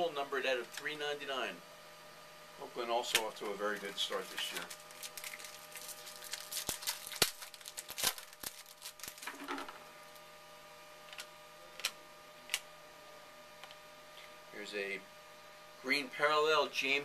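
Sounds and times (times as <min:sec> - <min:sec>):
electrical hum: 0:00.0 - 0:17.0
cards clicking and rustling: 0:03.1 - 0:09.8.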